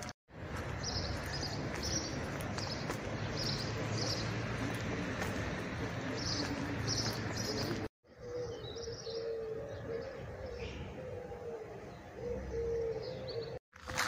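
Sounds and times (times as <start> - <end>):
dove cooing: 6.0 - 13.6.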